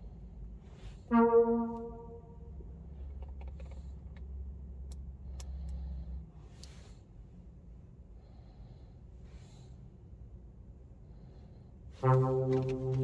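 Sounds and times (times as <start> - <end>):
brassy synthesizer note: 1.1 - 2.5, 12.0 - 13.0
low bass tone: 1.1 - 2.5, 12.0 - 13.0.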